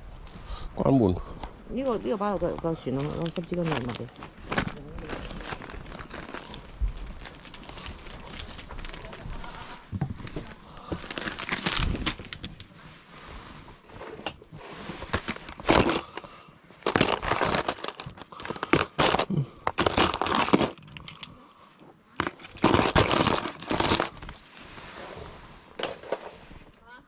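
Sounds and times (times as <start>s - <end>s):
gear rustling scraping and clinking: 15.0s - 21.4s, 22.2s - 24.5s.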